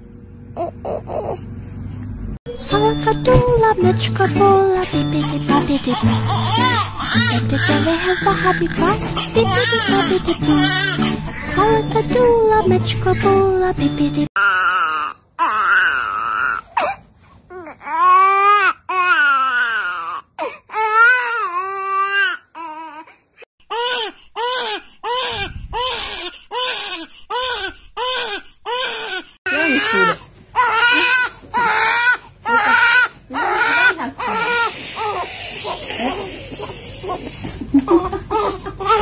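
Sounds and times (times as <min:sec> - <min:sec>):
newborn babies crying: 0:05.2 - 0:11.6, 0:14.4 - 0:39.0.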